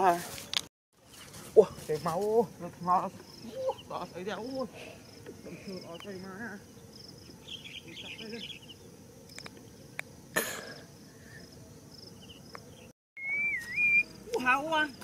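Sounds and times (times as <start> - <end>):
rustle: 0.0 - 15.0
insects chirping: 1.0 - 15.0
faint bird chirps: 10.7 - 14.4
whistled note: 13.2 - 14.1
loud calls with bending pitch: 13.2 - 14.2.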